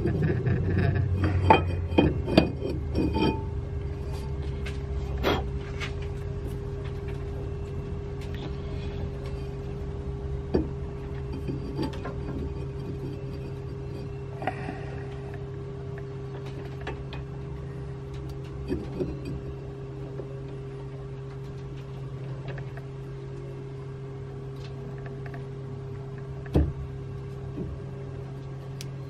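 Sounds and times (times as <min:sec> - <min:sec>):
metal pipe clicks and knocks: 0:00.0 - 0:04.3, 0:10.5 - 0:14.1, 0:18.2 - 0:19.5
low hum: 0:00.0 - 0:29.0.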